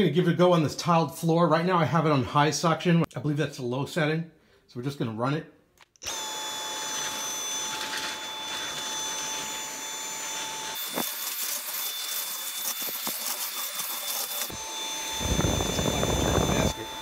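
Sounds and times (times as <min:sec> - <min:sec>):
vacuum cleaner motor whine: 0:06.0 - 0:17.0.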